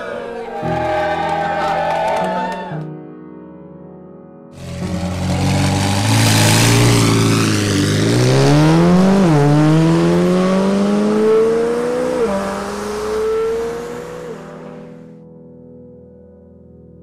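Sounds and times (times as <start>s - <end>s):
sports car engine accelerating: 4.6s - 15.1s.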